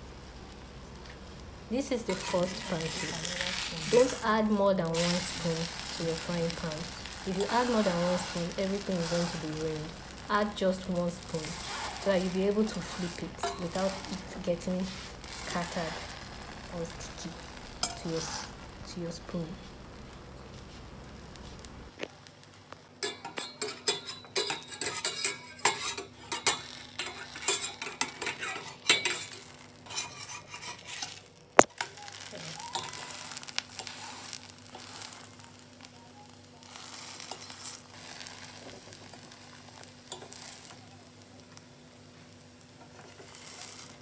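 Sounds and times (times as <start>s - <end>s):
pancake sizzling in a pot: 0.0s - 44.0s
spatula scraping and tapping pot: 12.7s - 14.2s, 23.0s - 31.7s, 42.8s - 44.0s.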